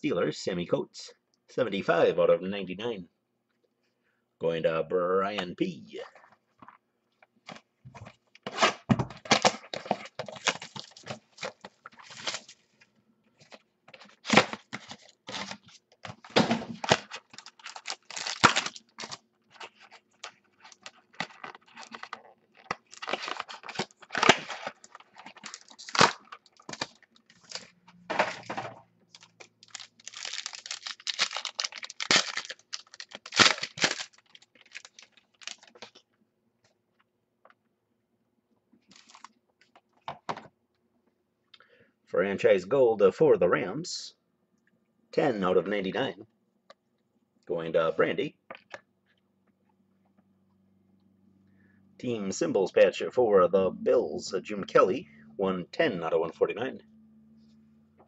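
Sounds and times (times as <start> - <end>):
box wrapping tearing and crinkling: 8.5 - 12.6, 16.2 - 27.7, 29.6 - 35.7.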